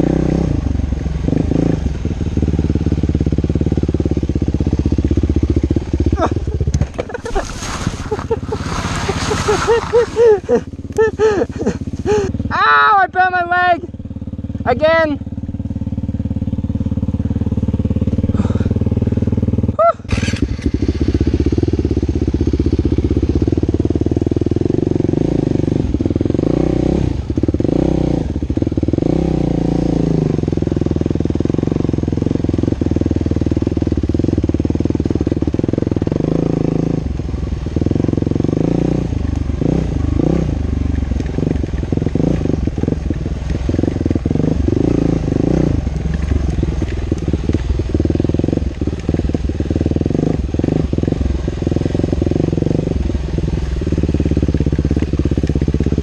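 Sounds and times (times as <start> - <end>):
dirt bike engine: 0.0 - 25.4, 39.6 - 56.0.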